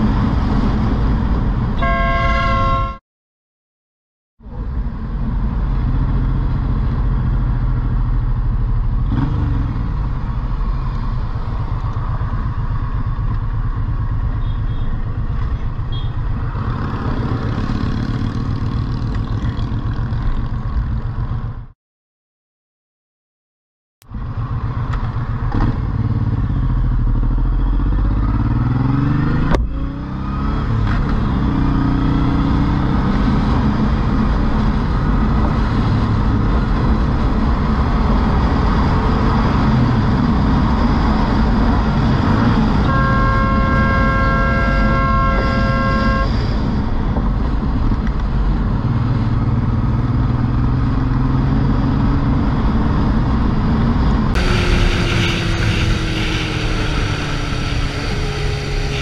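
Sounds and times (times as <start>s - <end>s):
vehicle horn blaring: 1.8s - 3.0s, 15.9s - 16.2s, 42.8s - 46.5s, 54.4s - 59.0s
motorcycle engine at speed: 5.0s - 21.7s, 24.0s - 59.0s.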